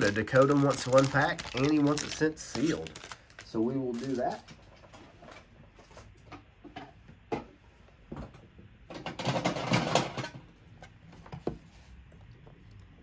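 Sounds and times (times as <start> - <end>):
wrapper crinkling: 0.0 - 4.6.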